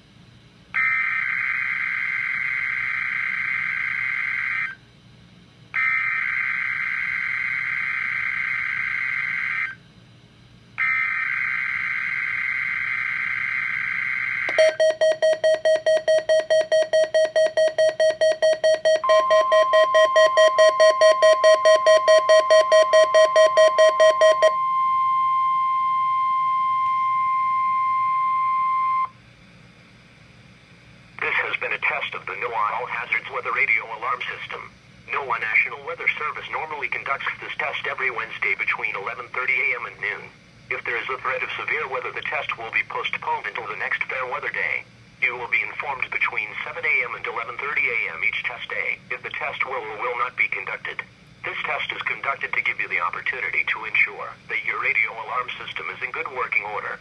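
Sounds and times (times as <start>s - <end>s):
steady warning alarm tone: 0.7s - 5.0s, 5.7s - 9.8s, 10.8s - 29.2s
radio alert beeping: 14.5s - 29.1s.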